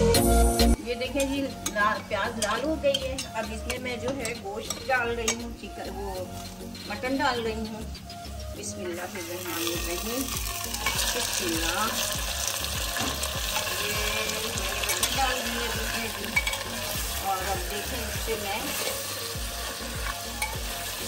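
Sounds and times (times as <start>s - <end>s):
metal spatula scraping a pot: 1.1s - 7.2s, 12.9s - 21.0s
meat sizzling in hot oil: 9.0s - 21.0s.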